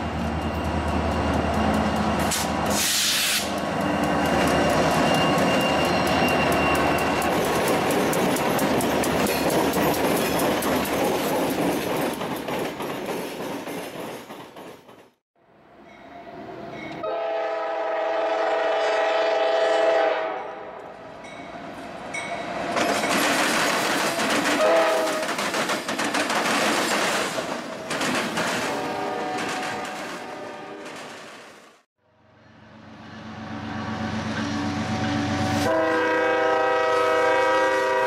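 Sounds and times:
diesel locomotive rumbling past: 0.0 - 13.8, 32.1 - 38.0
locomotive horn blasts: 17.0 - 20.8, 24.6 - 25.2, 28.8 - 30.9, 34.7 - 38.0.

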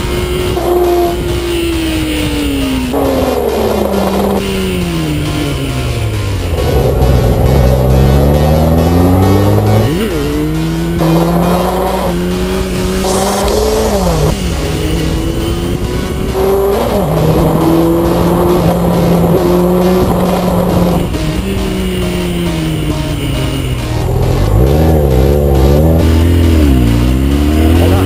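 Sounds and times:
electronic dance music: 7.4 - 15.7.

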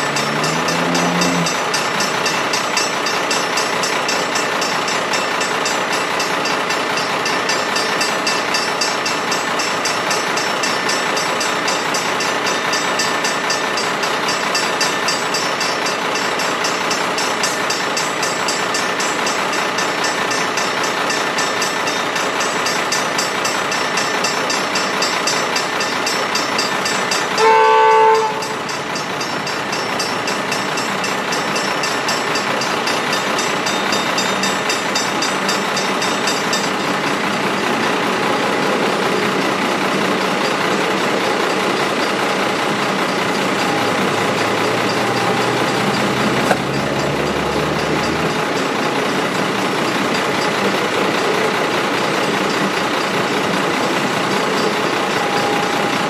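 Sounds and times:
level crossing bells ringing: 0.0 - 56.0
train wheels rumbling on rails: 0.0 - 56.0
train horn blast: 0.2 - 1.6, 27.4 - 28.6.

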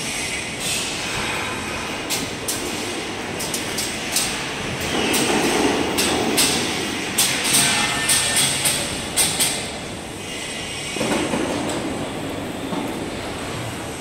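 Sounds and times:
sharp clicks and knocks: 3.4 - 9.7.

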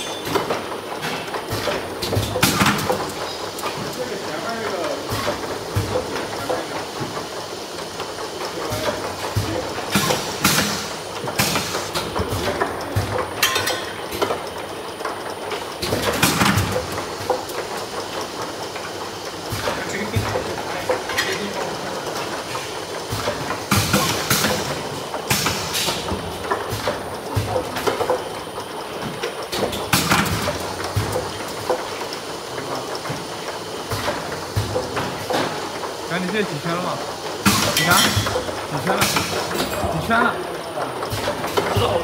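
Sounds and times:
bottling machine rattling: 0.0 - 42.0.

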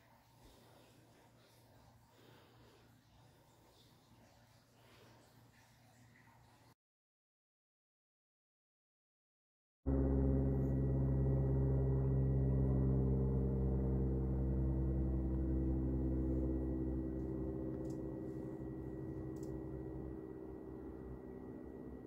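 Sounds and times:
low ringing drone chord: 9.9 - 22.0
thin steady high tone: 9.9 - 22.0.

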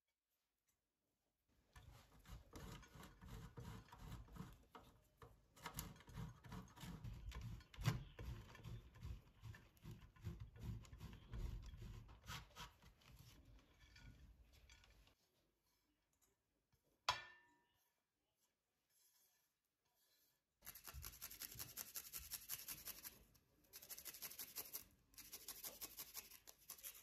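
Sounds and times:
cheese grating on metal grater: 1.8 - 4.8, 5.6 - 13.0, 20.6 - 27.0.

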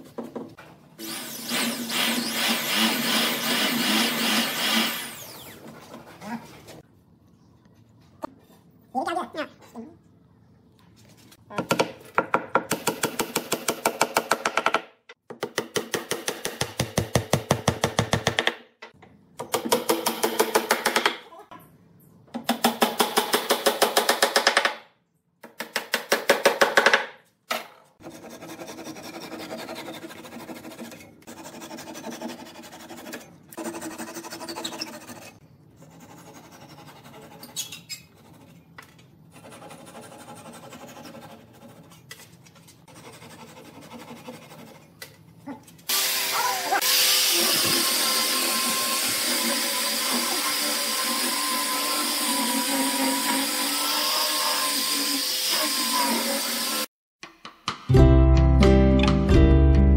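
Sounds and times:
hand saw cutting wood: 45.9 - 56.9.

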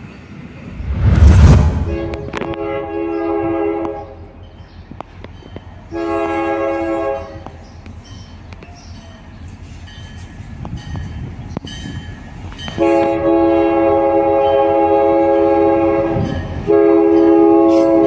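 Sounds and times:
locomotive engine and wheels rumbling: 0.0 - 18.0
locomotive air horn: 1.9 - 4.2, 5.9 - 7.5, 12.8 - 18.0.

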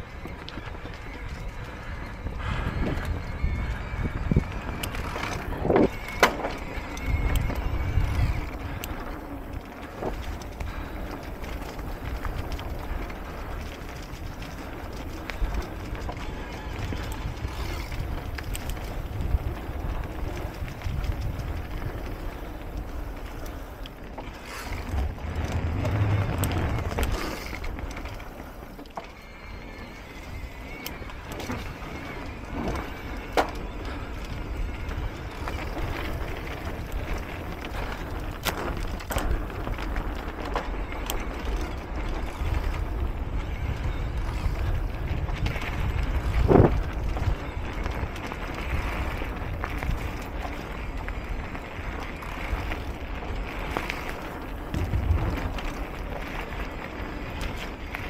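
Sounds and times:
bike tyres rumbling on dirt: 0.0 - 58.0
bike knocks and rattles: 4.8 - 7.6.

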